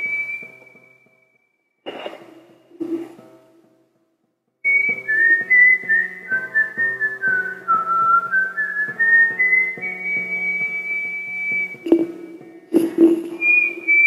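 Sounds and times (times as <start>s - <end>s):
whistled melody: 0.0s - 1.6s, 4.6s - 14.0s
plucked notes: 1.9s - 4.0s, 4.6s - 14.0s.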